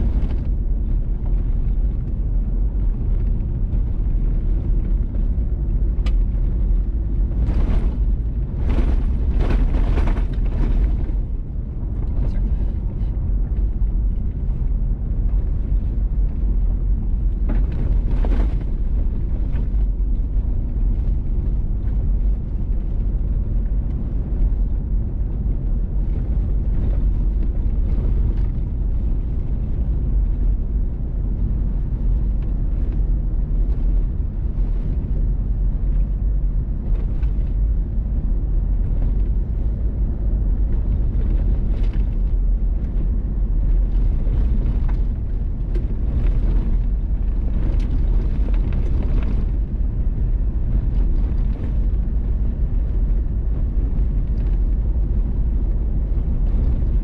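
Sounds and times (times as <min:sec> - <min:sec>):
vehicle engine: 0:00.0 - 0:57.0.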